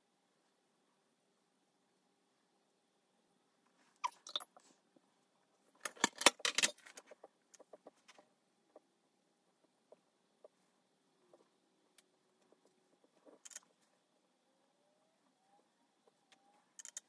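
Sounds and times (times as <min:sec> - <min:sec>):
plastic palettes clattering on table: 0:05.8 - 0:07.1.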